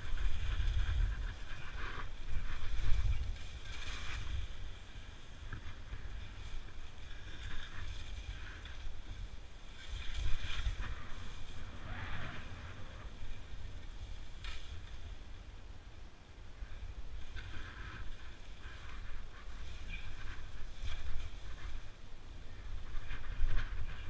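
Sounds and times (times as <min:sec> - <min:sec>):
skis hissing and scraping on snow: 0:00.0 - 0:15.3
wind rumble on microphone: 0:00.0 - 0:24.0.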